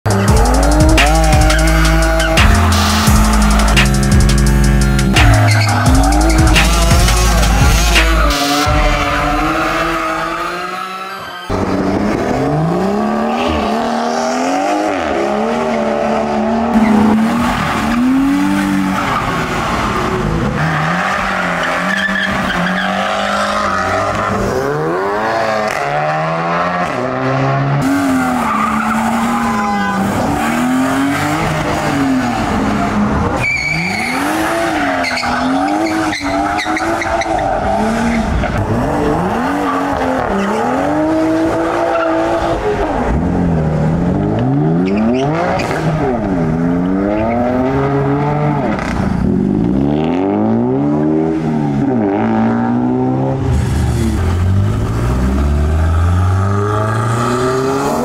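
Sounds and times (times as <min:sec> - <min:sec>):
car engines revving: 0:00.0 - 0:58.0
tyre squeal: 0:00.4 - 0:03.6, 0:04.8 - 0:11.7, 0:33.4 - 0:38.6, 0:44.8 - 0:45.8.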